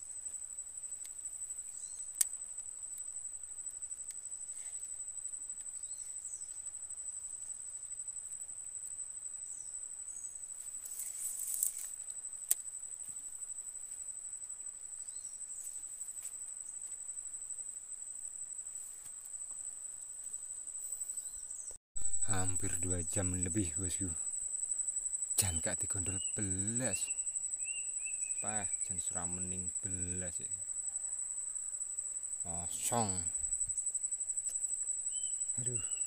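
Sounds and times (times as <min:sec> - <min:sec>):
insect trill: 0:00.0 - 0:36.0
brief rustle: 0:10.6 - 0:12.0.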